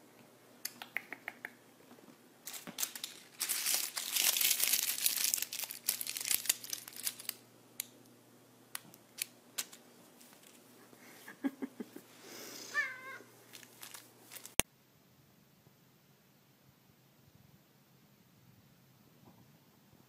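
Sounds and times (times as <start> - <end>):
foil toy crinkling: 2.4 - 7.4, 9.2 - 10.6, 13.5 - 14.6.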